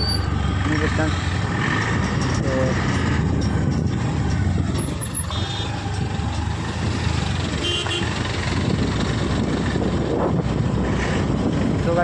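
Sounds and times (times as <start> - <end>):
scooter road rumble: 0.0 - 12.0
wind buffeting: 1.2 - 12.0.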